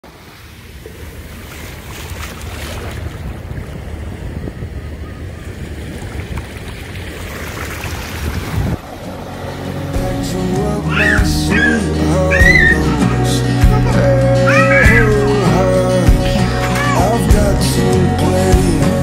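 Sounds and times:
small waves washing on shore: 0.0s - 13.7s.

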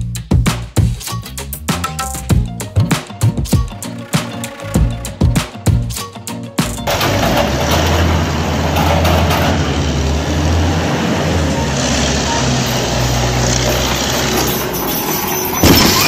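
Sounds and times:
diesel engines humming: 3.7s - 16.0s.

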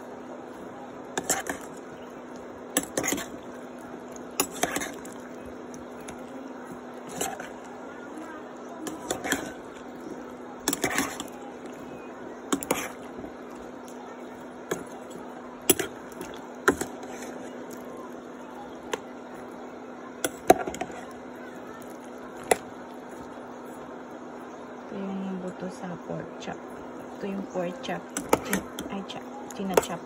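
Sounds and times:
steady low hum: 0.0s - 30.0s
metal spoon scraping a pan: 1.2s - 1.7s, 2.8s - 3.4s, 4.4s - 5.2s, 8.8s - 9.7s, 10.6s - 11.4s, 12.5s - 13.1s.

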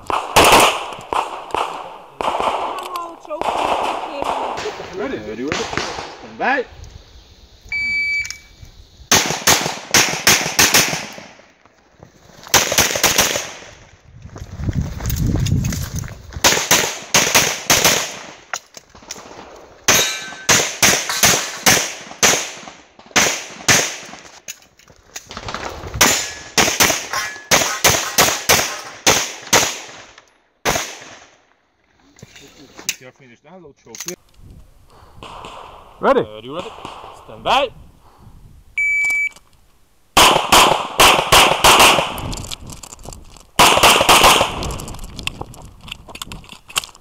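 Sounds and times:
rapid pistol fire: 0.1s - 2.8s, 3.4s - 6.2s, 9.1s - 11.3s, 12.5s - 13.6s, 16.4s - 18.3s, 40.2s - 42.3s, 43.6s - 44.8s.

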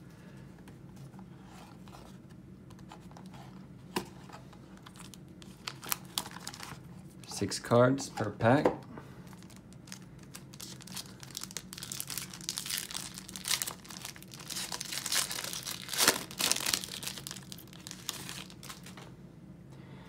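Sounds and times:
foil wrapper tearing and crinkling: 4.9s - 6.8s, 9.3s - 19.0s.

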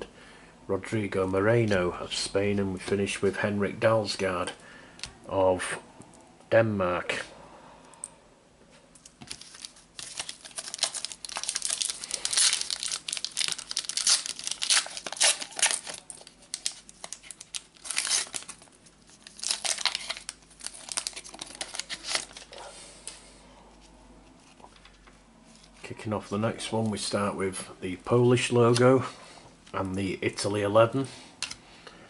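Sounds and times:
card packet wrapper crinkling: 9.0s - 22.5s.

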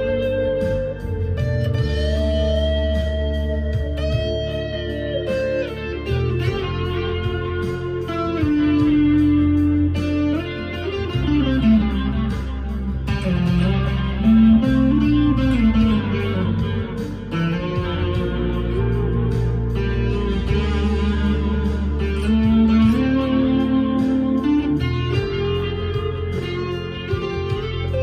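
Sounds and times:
electric guitar lead with bends: 0.0s - 28.0s.

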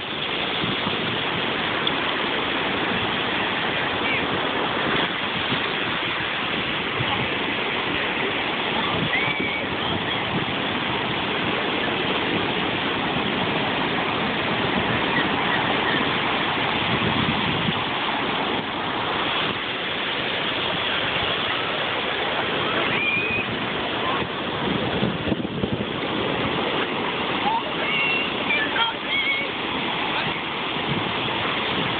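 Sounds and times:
ocean surf washing on sand: 0.0s - 31.9s.

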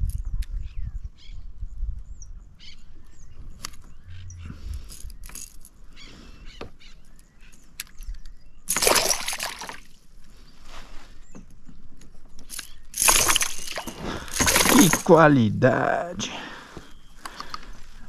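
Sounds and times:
loud splash: 8.7s - 9.8s, 13.0s - 15.2s
fish thrashing and splashing: 8.7s - 10.0s, 12.5s - 15.3s.

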